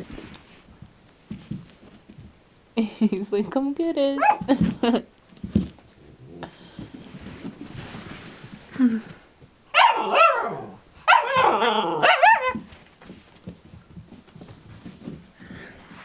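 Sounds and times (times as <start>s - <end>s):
puppies barking and yipping: 9.8s - 12.7s.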